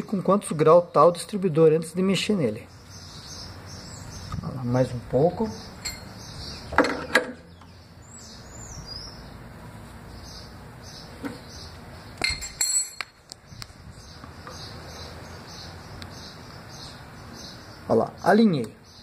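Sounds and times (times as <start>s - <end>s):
bird chirping: 0.0s - 19.0s
tool clinking on metal: 5.8s - 6.2s, 12.2s - 13.2s.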